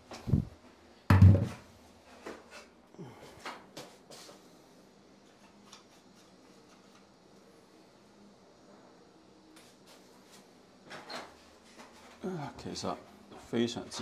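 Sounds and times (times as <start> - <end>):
metal basket thump: 1.1 - 1.6.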